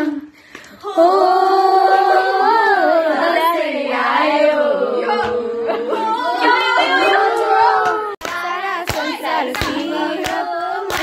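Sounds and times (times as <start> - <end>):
women singing together: 0.0 - 11.0
hand claps: 7.8 - 11.0.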